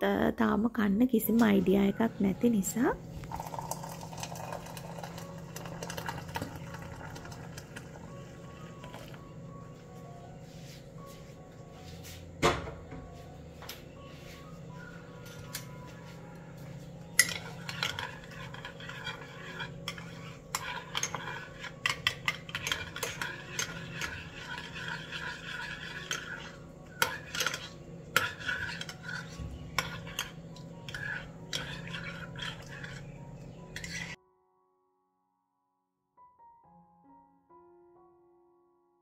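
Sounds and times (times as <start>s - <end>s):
spoon clinking in a cup: 3.2s - 7.9s, 17.2s - 34.2s.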